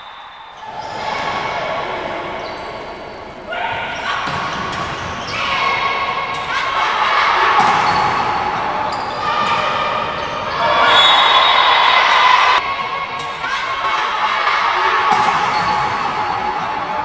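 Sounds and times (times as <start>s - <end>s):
voices shouting: 0.0s - 17.0s
volleyball hits: 7.3s - 8.7s, 14.4s - 16.6s.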